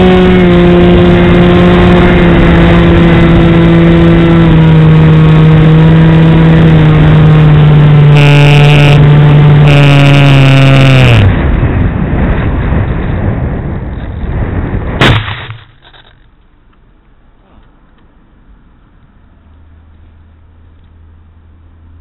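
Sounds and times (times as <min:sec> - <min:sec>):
electric motor and propeller: 0:00.0 - 0:13.2.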